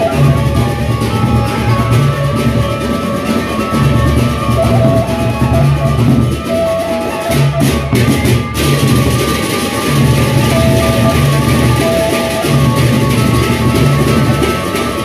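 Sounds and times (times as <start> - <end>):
barrel drums beaten: 0.0 - 15.0
steady ringing tones: 8.0 - 15.0.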